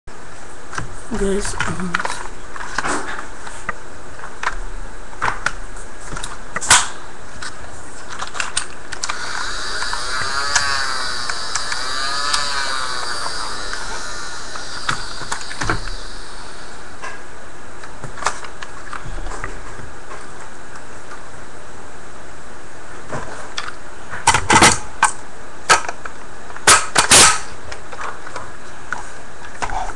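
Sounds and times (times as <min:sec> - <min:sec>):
plastic toy blaster clicks and rattles: 0:08.1 - 0:16.0
flywheel motors whining: 0:08.9 - 0:17.2.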